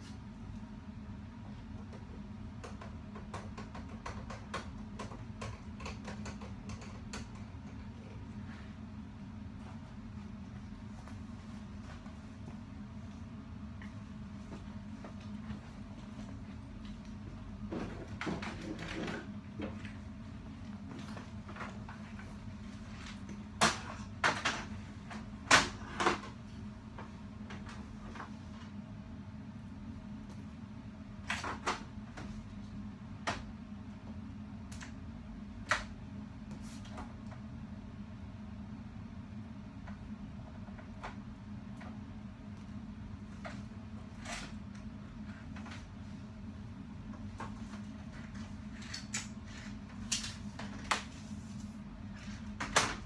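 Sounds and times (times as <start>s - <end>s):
steady low hum: 0.0s - 53.0s
knocks of things being handled: 1.8s - 7.9s
computer keyboard typing: 2.6s - 7.5s.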